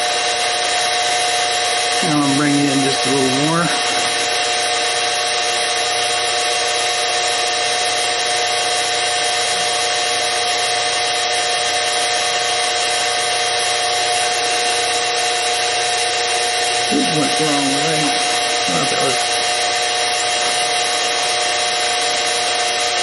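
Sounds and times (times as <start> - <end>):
mini mill whining: 0.0 - 23.0
end mill cutting aluminium: 1.1 - 7.2, 11.8 - 23.0.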